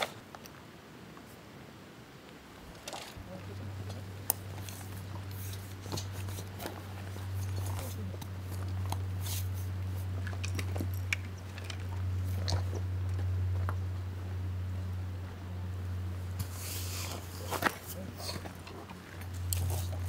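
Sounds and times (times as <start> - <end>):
steady low hum: 0.0 - 20.0
small clicks and crackles: 2.2 - 13.8.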